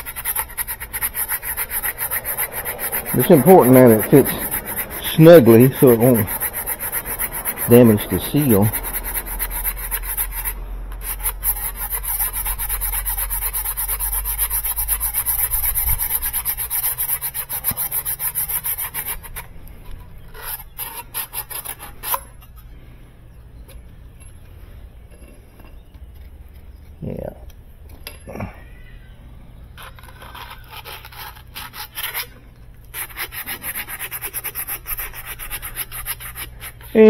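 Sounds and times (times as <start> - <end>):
sandpaper rubbing on metal tube: 0.0 - 22.2, 29.8 - 37.0.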